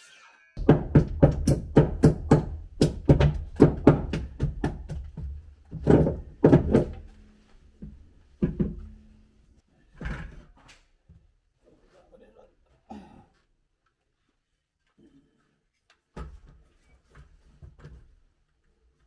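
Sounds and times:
metal tool knocking on wood: 0.6 - 7.1.

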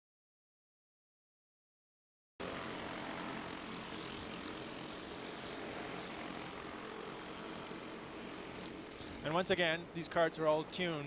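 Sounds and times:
kart engines passing: 2.4 - 11.0.

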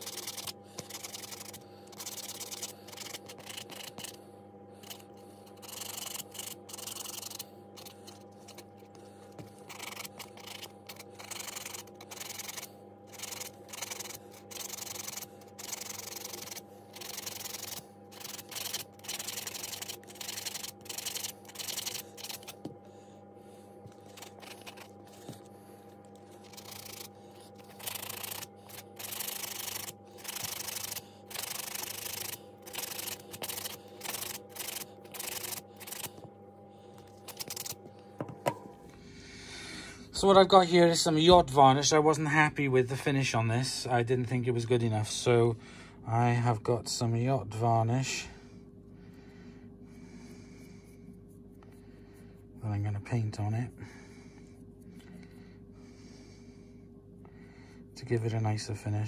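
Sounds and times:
sanding sponge scratching on wood: 0.0 - 4.2, 4.8 - 8.8, 9.6 - 22.7, 23.8 - 25.4, 26.4 - 36.2, 37.2 - 37.8.

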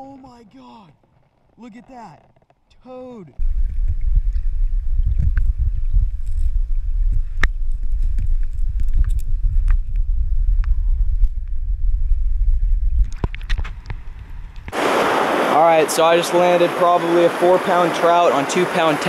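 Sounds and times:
muffled underwater river rumble: 3.4 - 14.8
river rushing hiss: 14.7 - 19.0.

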